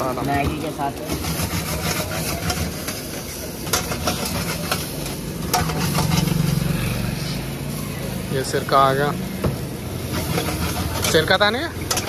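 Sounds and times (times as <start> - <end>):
noodles sizzling in a wok: 0.0 - 12.0
metal spatula scraping a pan: 0.4 - 7.5, 9.7 - 12.0.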